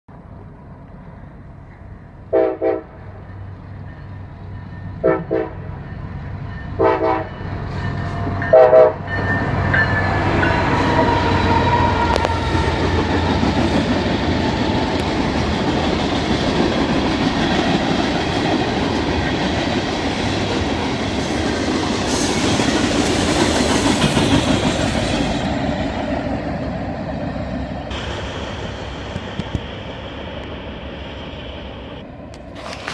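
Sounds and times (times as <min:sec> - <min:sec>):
freight train rumbling past: 0:00.1 - 0:32.9
train air horn blasts: 0:02.3 - 0:03.2, 0:05.0 - 0:05.7, 0:06.8 - 0:07.4, 0:08.5 - 0:09.1.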